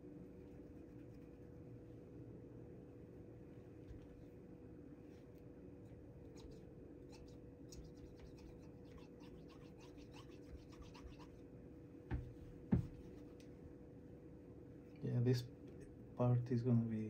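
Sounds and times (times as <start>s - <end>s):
scrubbing on metal: 6.4s - 11.3s
knocks: 12.1s - 13.0s.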